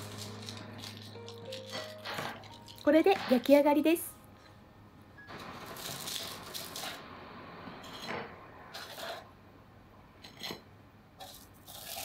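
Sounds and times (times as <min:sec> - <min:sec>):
aluminium foil crinkling: 0:00.0 - 0:03.5, 0:05.6 - 0:07.0, 0:11.2 - 0:12.0
spatula scraping baking tray: 0:07.8 - 0:09.3.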